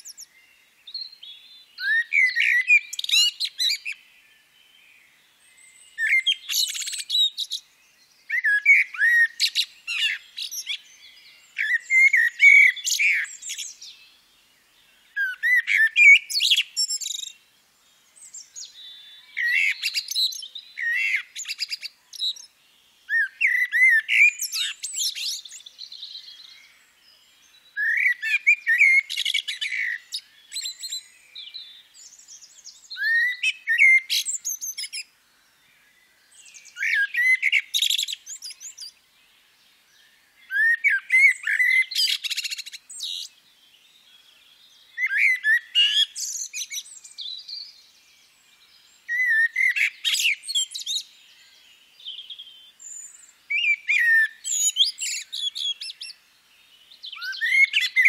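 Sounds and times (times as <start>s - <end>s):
songbird warbling: 8.3s - 14.0s, 40.4s - 43.3s, 49.1s - 56.2s.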